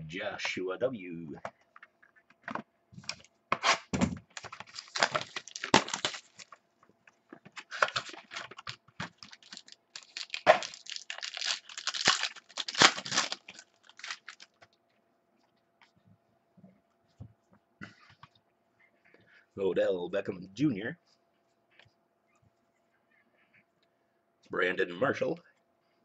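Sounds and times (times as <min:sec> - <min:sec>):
cards being handled: 0:02.5 - 0:06.6
wrapper tearing and crinkling: 0:03.6 - 0:06.6, 0:07.6 - 0:14.6.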